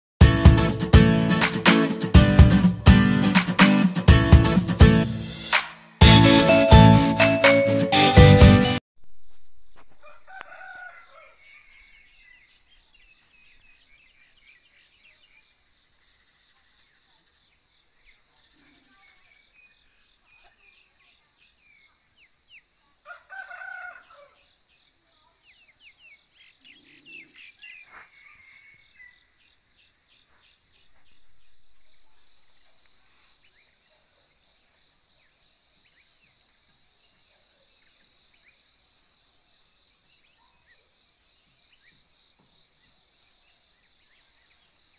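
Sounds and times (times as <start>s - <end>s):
insects trilling: 9.0s - 44.9s
rooster crowing: 9.9s - 12.1s, 23.0s - 24.5s, 27.9s - 29.2s.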